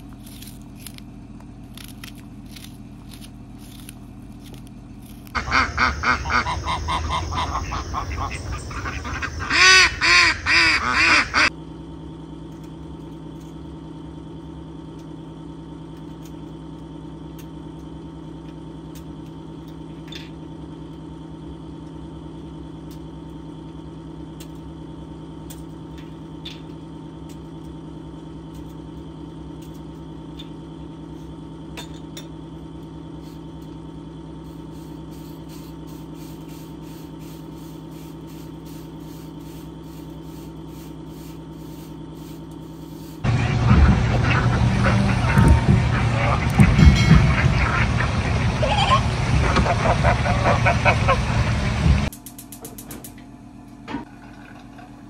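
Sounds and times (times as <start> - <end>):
geese honking: 5.3 - 11.5, 43.3 - 51.6
steady hum: 20.5 - 54.1.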